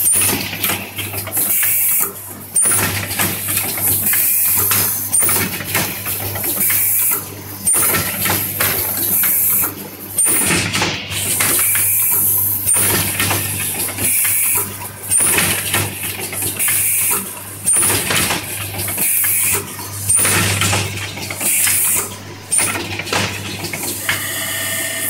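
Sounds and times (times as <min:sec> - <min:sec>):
pneumatic cylinders clacking: 0:00.0 - 0:24.3
machine chirp: 0:04.0 - 0:05.5, 0:06.2 - 0:10.6, 0:11.3 - 0:13.0.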